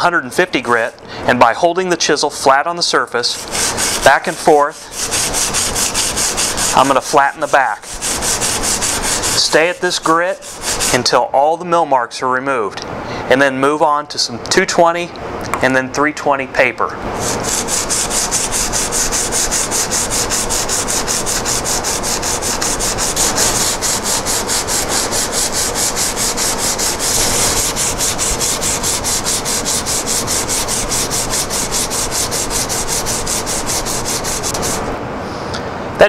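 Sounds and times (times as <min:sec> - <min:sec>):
chisel scraping on sandpaper: 0:00.4 - 0:11.1, 0:17.2 - 0:34.9.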